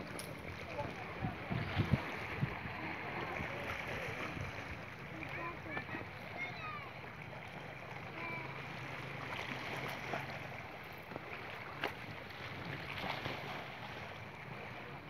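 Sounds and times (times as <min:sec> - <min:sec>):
wind on microphone: 0:00.0 - 0:04.8
faint distant voices: 0:00.0 - 0:09.4
small waves washing: 0:00.0 - 0:15.0.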